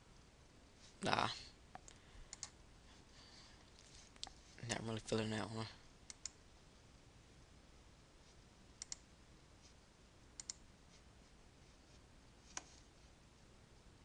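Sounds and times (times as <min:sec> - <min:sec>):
faint room hiss: 0:00.0 - 0:14.0
computer mouse button clicking: 0:08.8 - 0:09.0, 0:10.4 - 0:10.6.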